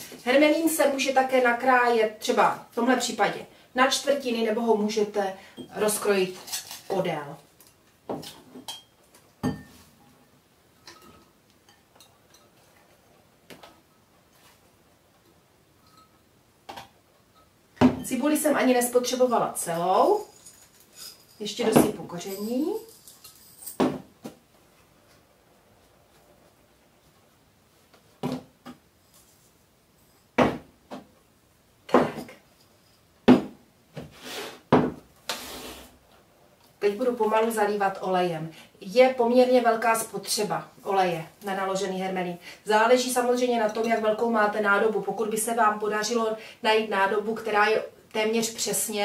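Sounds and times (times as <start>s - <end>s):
spoon clinking on bowl and jar: 8.6s - 9.8s, 10.8s - 12.6s, 15.8s - 16.2s.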